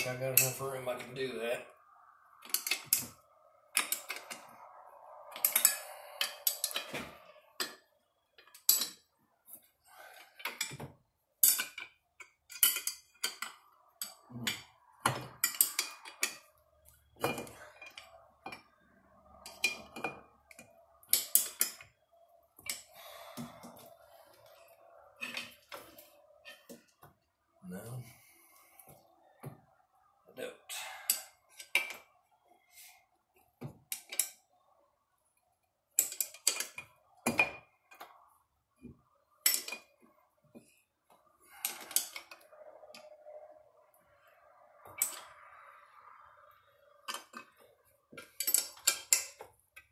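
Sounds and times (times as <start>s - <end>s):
metal clinks and scrapes: 2.3s - 27.0s, 31.0s - 33.0s, 35.9s - 38.4s, 39.3s - 49.9s.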